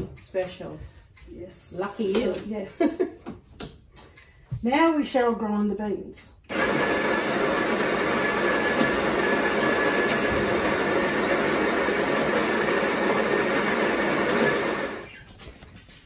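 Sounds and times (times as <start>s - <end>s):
coffee grinder grinding beans: 6.5s - 15.1s.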